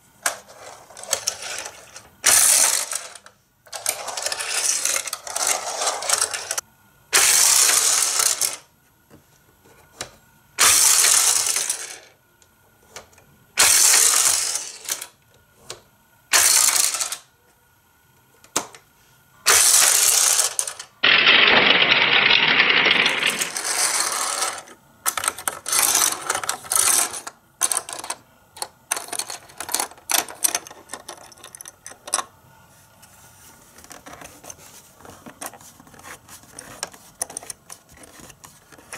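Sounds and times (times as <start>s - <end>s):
toy car rolling on plastic track: 0.2s - 6.6s, 7.2s - 8.6s, 10.6s - 12.1s, 13.6s - 15.1s, 16.3s - 17.3s, 19.5s - 28.2s.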